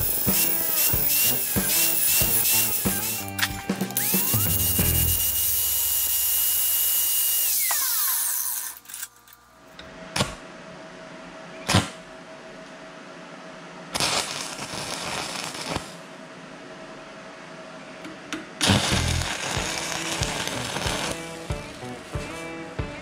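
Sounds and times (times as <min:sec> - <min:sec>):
welding arc crackle: 0:00.0 - 0:08.9, 0:13.9 - 0:16.0, 0:18.6 - 0:22.0
angle grinder cutting steel: 0:00.0 - 0:09.1, 0:18.6 - 0:21.8.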